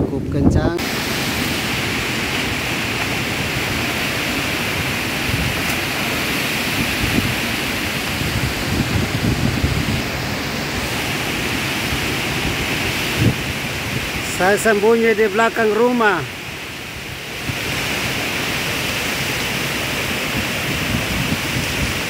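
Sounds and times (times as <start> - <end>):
storm wind through trees: 0.0 - 22.0
wind buffeting microphone: 0.0 - 22.0
driving rain: 0.8 - 22.0.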